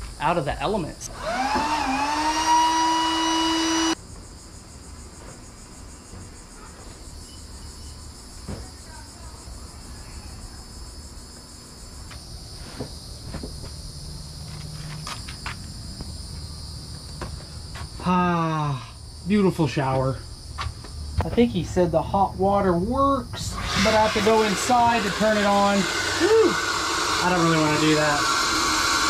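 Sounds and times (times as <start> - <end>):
insects chirring: 0.0 - 25.8
loud steady pitched tone: 21.6 - 29.0.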